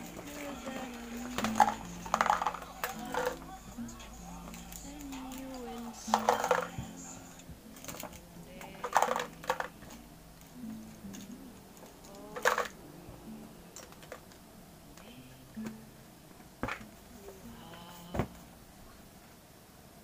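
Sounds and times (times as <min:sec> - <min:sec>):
pens rattling in a plastic cup: 0:00.0 - 0:03.5, 0:04.5 - 0:07.0, 0:07.8 - 0:10.0, 0:12.0 - 0:12.8
soft low background music: 0:00.0 - 0:19.4.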